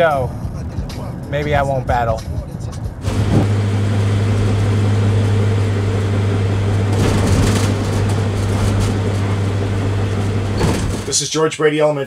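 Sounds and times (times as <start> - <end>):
car engine hum: 0.0 - 11.1
road noise: 0.0 - 11.2.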